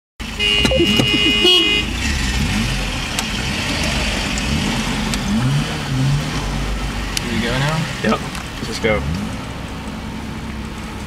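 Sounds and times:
truck engine running: 0.2s - 5.8s
road noise inside cab: 0.2s - 11.0s
vehicle horn: 0.3s - 2.1s.

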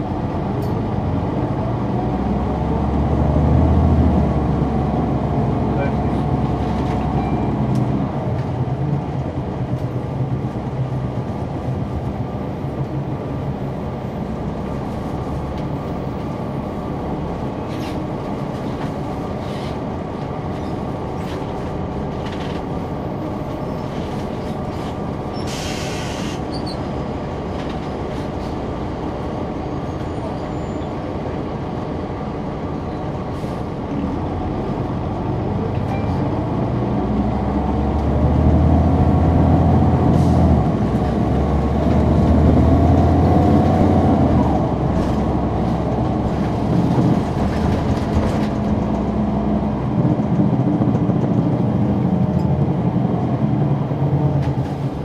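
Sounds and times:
bus diesel engine: 0.0s - 55.0s
ride rumble and rattles: 0.0s - 55.0s
short air hiss: 25.5s - 26.4s.

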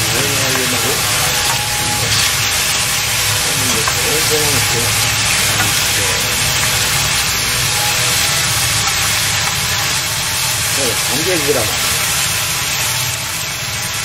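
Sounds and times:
meat sizzling in a frying pan: 0.0s - 14.0s.

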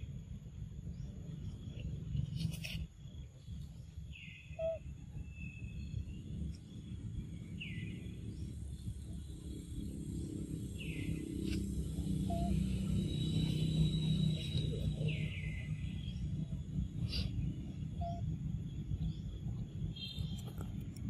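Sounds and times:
low rumble: 3.2s - 20.0s.

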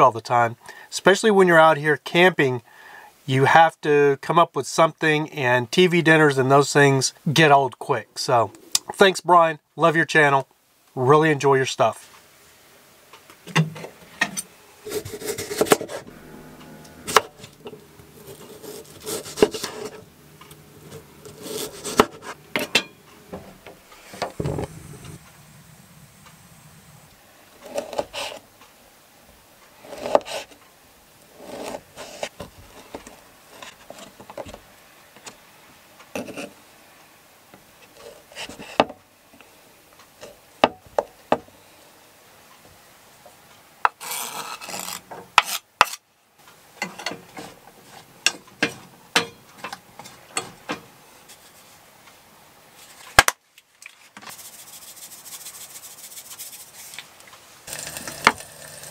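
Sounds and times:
steady low hum: 14.6s - 28.6s
knife cutting on wooden board: 14.8s - 16.0s, 18.2s - 20.0s, 20.8s - 22.4s
utensils and frying pan clattering: 21.9s - 23.0s, 48.3s - 50.9s.

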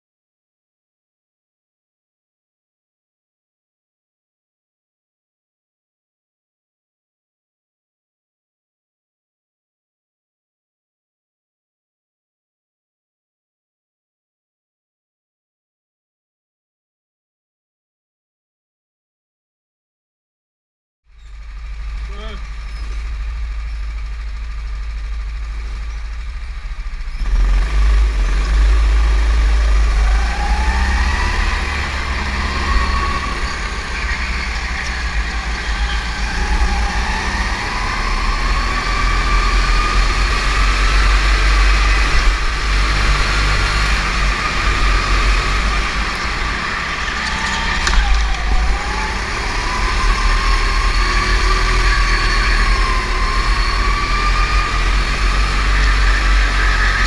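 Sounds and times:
heavy low rumble: 21.1s - 37.2s, 40.6s - 50.9s
go-kart engine revving: 21.2s - 57.0s.

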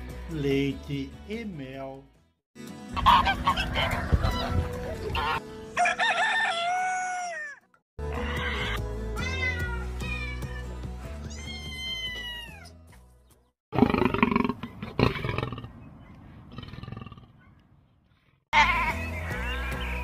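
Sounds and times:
background music: 0.0s - 7.4s, 8.0s - 13.5s, 18.6s - 20.0s
rooster crowing: 5.8s - 7.6s
cat meowing: 11.3s - 12.6s.

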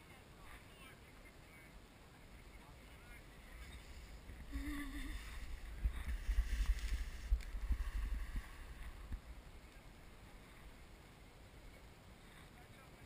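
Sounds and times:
wind buffeting the microphone: 5.1s - 9.6s.

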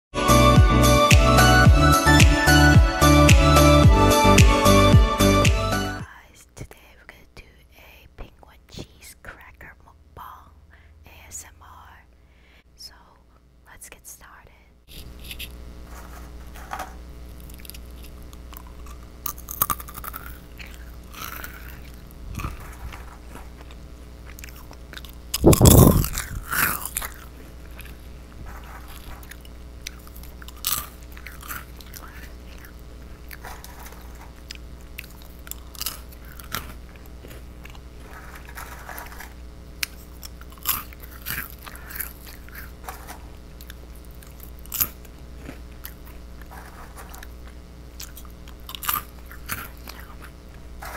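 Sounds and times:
crunching and chewing crackers: 15.0s - 50.9s
loud burst of noise: 25.3s - 26.7s.

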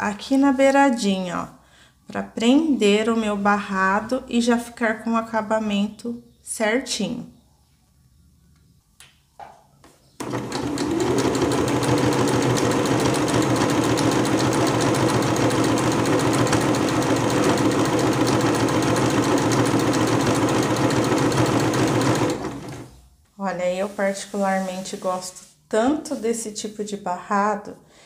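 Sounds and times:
sewing machine stitching: 10.2s - 22.9s.

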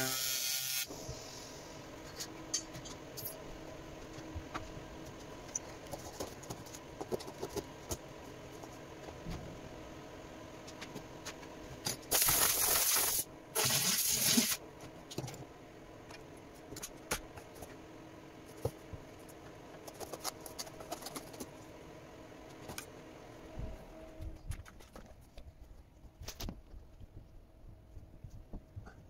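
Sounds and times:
welding arc hiss: 0.0s - 1.6s, 11.9s - 14.6s.

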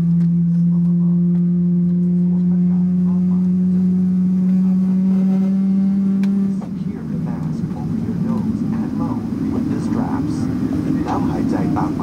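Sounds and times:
jet engine spooling up: 6.8s - 12.0s.

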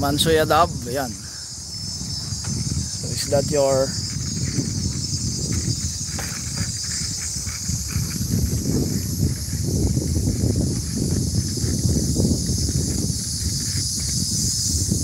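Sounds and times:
bicycle tyres on pavement: 0.0s - 15.0s
insects chorus: 0.0s - 15.0s
wind buffeting microphone: 0.0s - 15.0s.

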